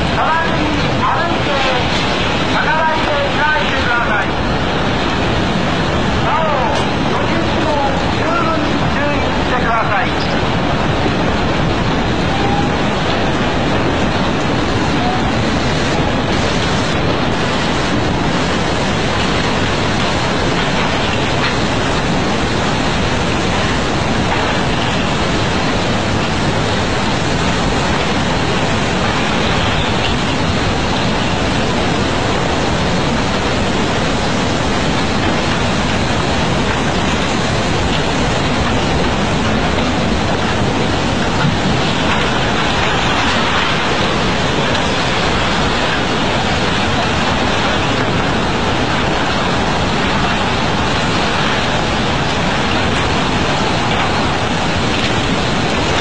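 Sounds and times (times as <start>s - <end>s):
rush of churning floodwater: 0.0s - 56.0s.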